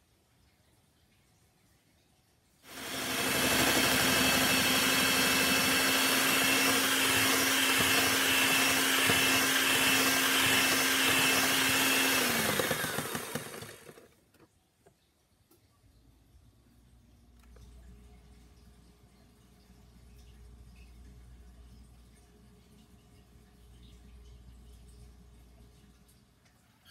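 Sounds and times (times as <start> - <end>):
electric hand mixer whirring: 2.7 - 14.1.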